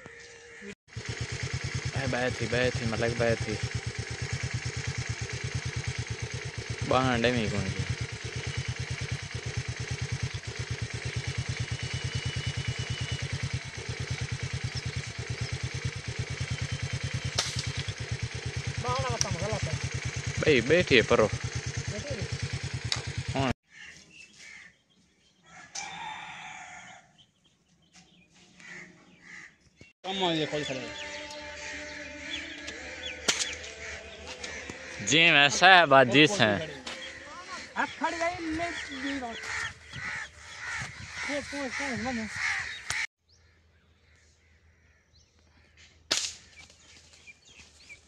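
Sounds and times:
crows cawing: 0.0 - 20.6, 21.2 - 27.2, 28.5 - 29.9, 30.6 - 47.6
faint bird chirps: 10.2 - 17.4
faint short rooster calls: 25.4 - 27.2
rooster crowing: 25.4 - 27.3.

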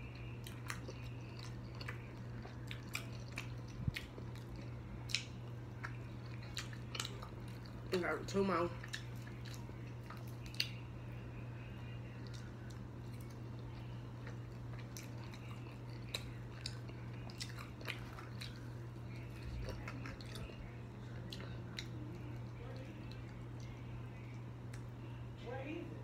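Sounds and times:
chewing with wet smacks: 0.0 - 25.2
low hum: 0.0 - 26.0.

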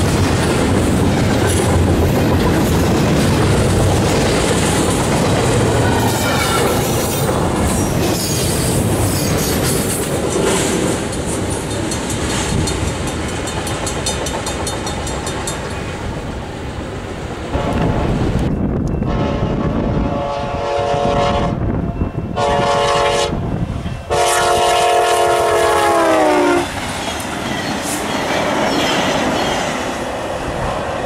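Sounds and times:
freight train rolling past: 0.0 - 31.0
train horn: 17.5 - 18.2, 18.9 - 21.7, 22.4 - 23.4, 24.1 - 26.7.

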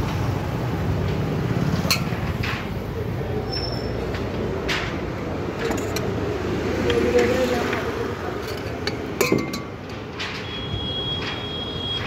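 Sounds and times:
low street rumble: 0.0 - 12.0
spoon clinking against steel bowl: 8.4 - 9.8.

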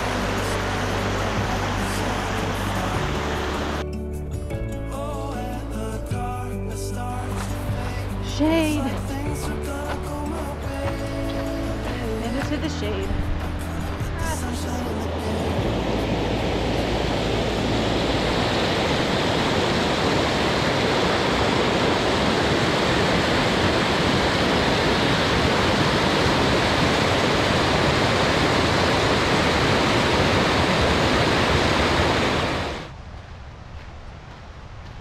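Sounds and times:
creek water rushing: 0.0 - 3.8, 7.0 - 33.0.

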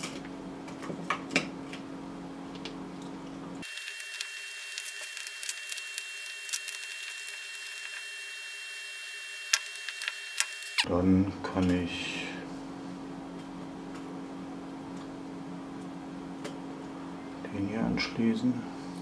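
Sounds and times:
low background hum: 0.0 - 8.6, 9.3 - 19.0
thin high whine: 3.6 - 11.0.

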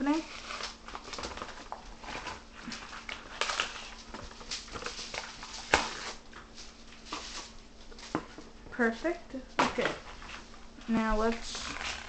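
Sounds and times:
plastic packaging crinkling: 0.0 - 8.2, 9.8 - 12.0.

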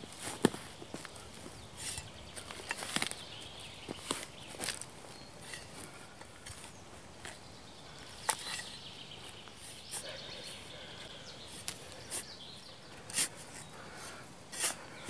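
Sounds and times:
spade striking sandy soil: 13.0 - 13.7, 14.5 - 14.8.

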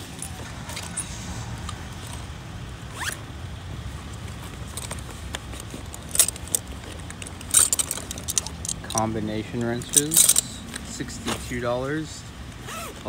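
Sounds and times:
zipper opening and closing: 2.9 - 3.2, 12.6 - 13.0
bag handling noises: 3.8 - 11.6, 12.6 - 13.0.

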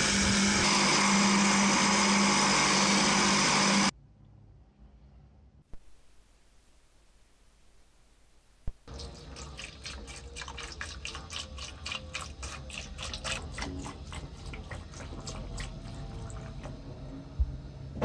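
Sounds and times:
liquid pouring and fizzing: 8.9 - 16.8.

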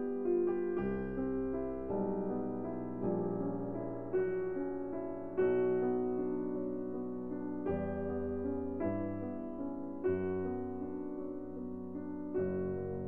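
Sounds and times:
piano chords ringing: 0.0 - 13.0.

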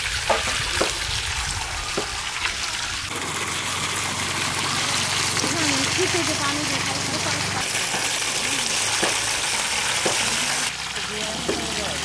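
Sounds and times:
hose water splashing: 0.0 - 12.0.

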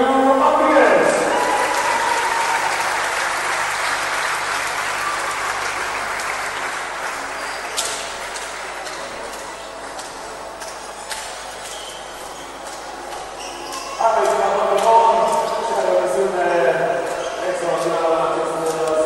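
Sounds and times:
crowd applauding: 1.0 - 16.0.

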